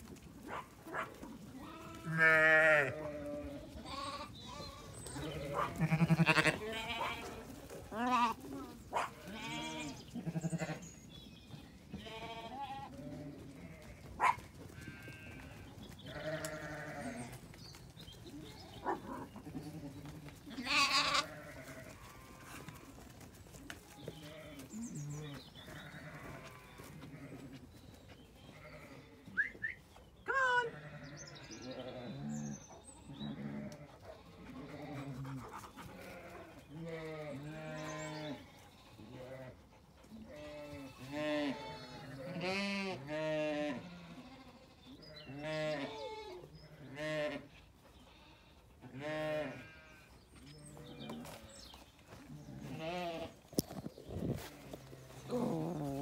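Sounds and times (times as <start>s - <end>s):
sheep bleating: 1.6s - 8.4s, 9.2s - 10.9s, 12.0s - 14.0s, 14.8s - 17.4s, 19.5s - 22.9s, 25.7s - 27.6s, 28.4s - 29.2s, 30.3s - 32.5s, 33.1s - 35.3s, 36.0s - 39.6s, 40.3s - 47.5s, 48.1s - 51.4s, 52.5s - 53.4s.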